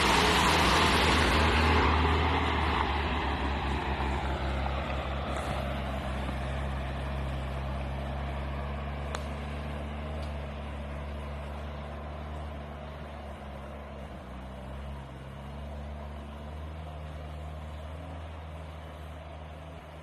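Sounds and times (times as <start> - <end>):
vehicle engine running: 0.0 - 20.0
wheels churning through mud and water: 0.0 - 20.0.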